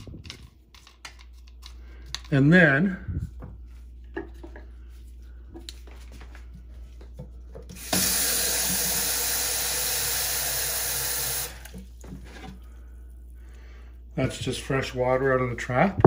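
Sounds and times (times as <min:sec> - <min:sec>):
tap water running into container: 0:07.7 - 0:12.2.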